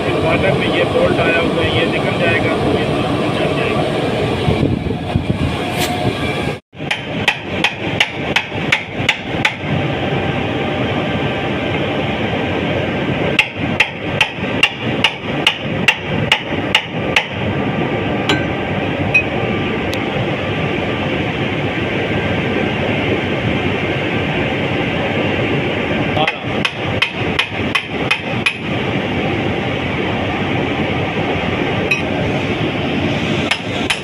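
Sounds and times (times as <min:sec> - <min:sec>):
steady background noise: 0:00.0 - 0:34.0.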